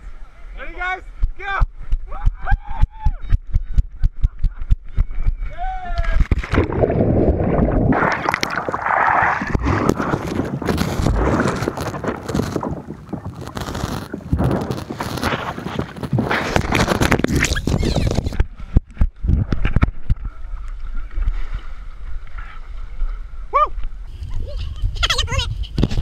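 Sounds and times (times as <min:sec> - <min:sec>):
wind noise: 0:01.2 - 0:20.4, 0:24.0 - 0:26.0
water sloshing and splashing: 0:06.2 - 0:23.2.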